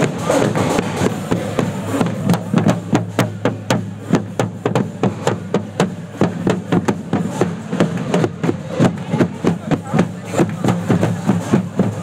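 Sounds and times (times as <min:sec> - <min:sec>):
marching drums: 0:00.0 - 0:12.0.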